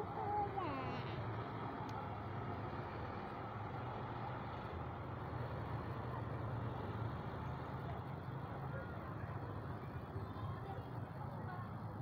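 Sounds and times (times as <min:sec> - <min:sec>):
diesel engine humming: 0:00.0 - 0:12.0.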